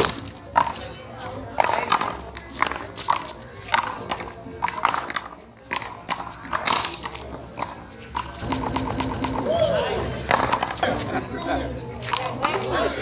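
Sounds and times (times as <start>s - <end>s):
rubber ball smacking: 8.2s - 9.5s.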